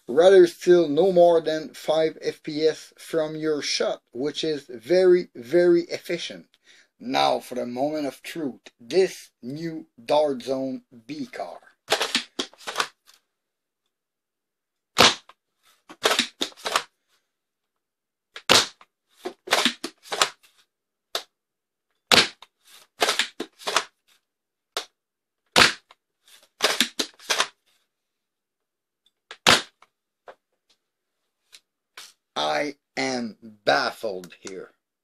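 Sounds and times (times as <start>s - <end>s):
foam dart blaster snap: 25.6s - 25.9s.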